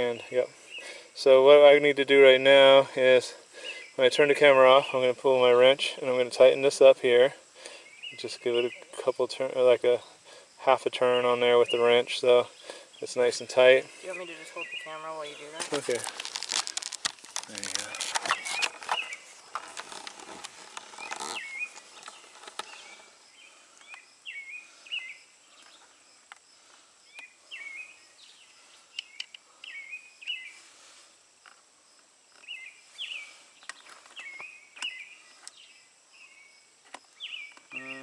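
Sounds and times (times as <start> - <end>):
bird chirping: 0.0 - 1.1, 3.5 - 6.9, 7.6 - 20.0, 20.8 - 31.0, 31.9 - 38.0
rustling handling noise: 14.1 - 23.1.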